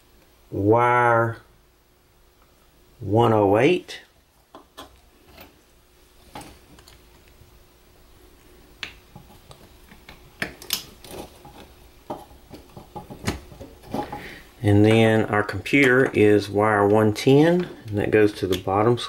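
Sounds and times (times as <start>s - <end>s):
rustling of wires: 8.2s - 19.0s.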